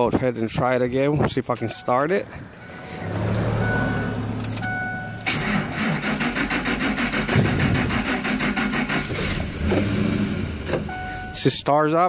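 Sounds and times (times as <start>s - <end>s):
dashboard warning chime: 1.5s - 3.0s, 3.6s - 5.3s, 10.8s - 11.6s
engine cranking on starter: 4.4s - 10.9s.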